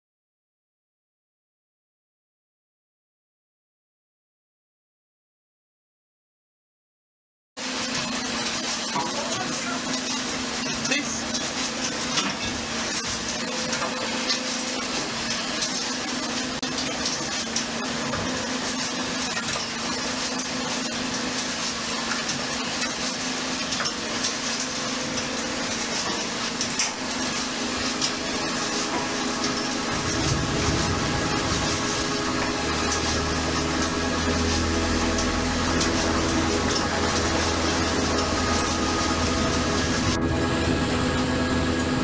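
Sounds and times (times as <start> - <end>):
machinery humming: 7.6 - 42.0
wash of noise: 24.4 - 42.0.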